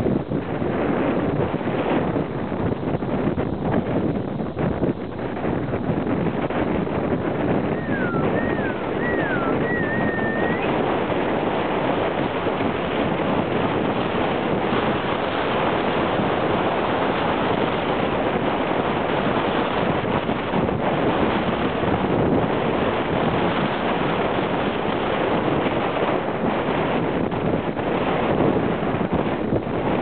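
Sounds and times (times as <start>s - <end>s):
wind rushing on microphone: 0.0s - 30.0s
high sliding whistle: 7.7s - 10.8s.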